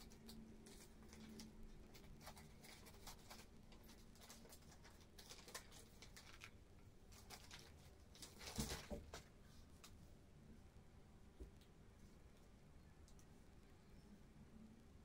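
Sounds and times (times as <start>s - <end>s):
painting supplies clicking and rustling: 0.0s - 10.0s.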